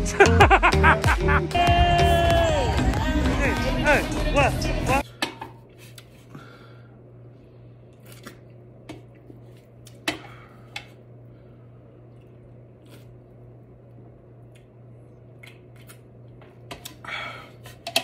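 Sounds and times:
steady low hum: 2.5s - 18.0s
person chewing: 12.0s - 13.4s.

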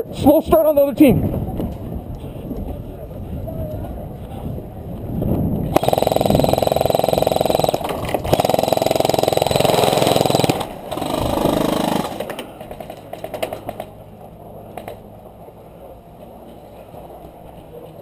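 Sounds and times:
airsoft rifle automatic fire: 5.7s - 13.9s.

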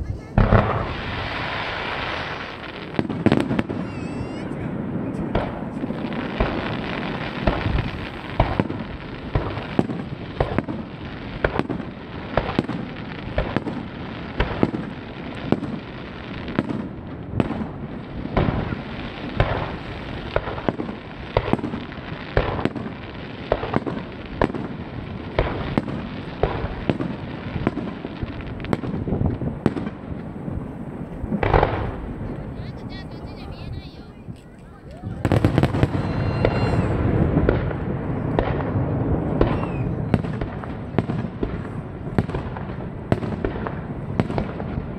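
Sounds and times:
firework shells bursting: 0.2s - 15.8s.

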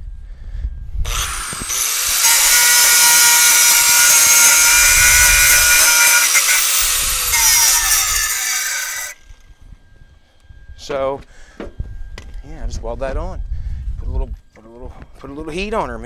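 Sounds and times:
angle grinder grinding steel: 1.1s - 9.4s.

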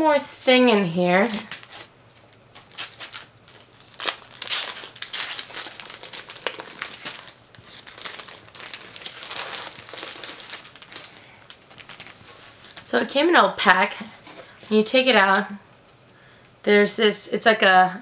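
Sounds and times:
plastic pack crinkling: 0.5s - 13.0s.

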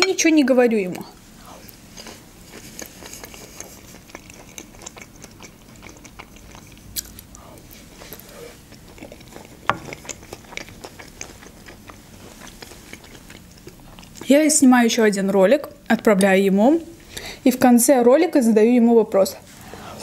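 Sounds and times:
person chewing: 1.5s - 14.2s.

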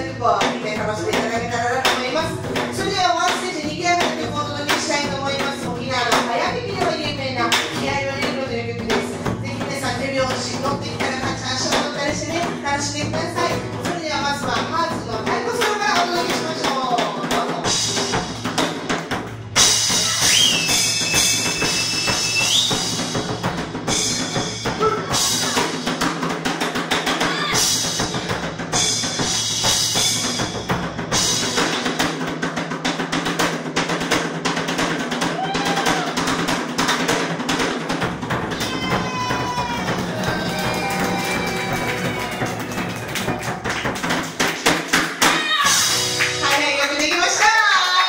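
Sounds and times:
drum kit: 0.0s - 48.0s
acoustic guitar: 0.4s - 23.6s.

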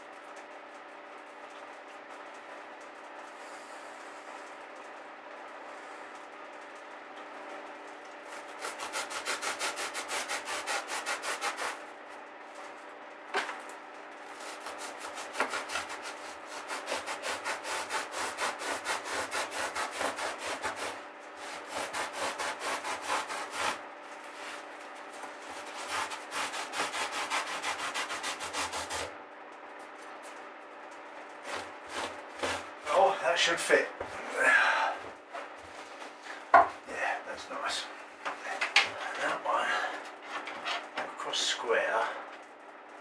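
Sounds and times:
knife sawing through foam: 8.3s - 11.8s, 14.3s - 24.7s, 25.4s - 29.1s, 31.4s - 33.5s.

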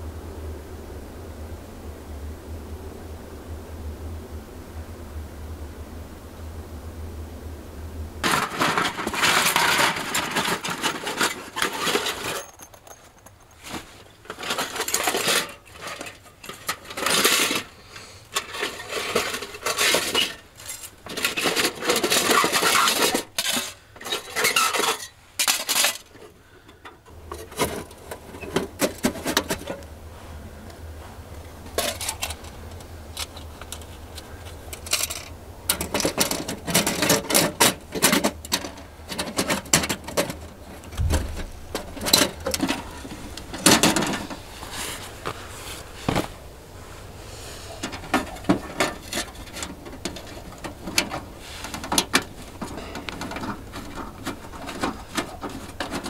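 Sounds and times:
metal stove panels clinking: 8.2s - 13.4s, 14.2s - 17.7s, 47.7s - 56.0s.

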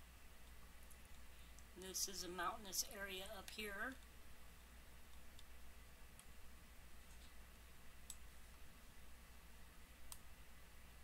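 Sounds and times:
low steady hum: 0.0s - 11.0s
computer mouse clicks: 6.1s - 6.4s, 8.0s - 8.3s, 10.1s - 10.3s.

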